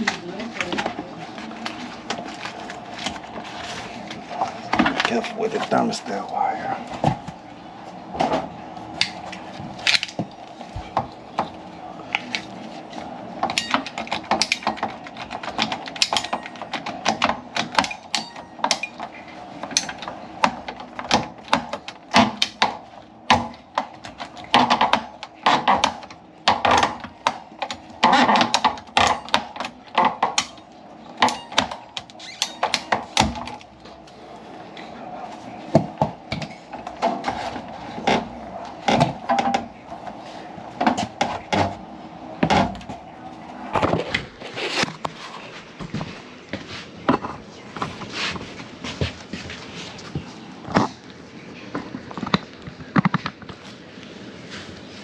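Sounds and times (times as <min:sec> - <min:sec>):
steady hum: 0:00.0 - 0:55.0.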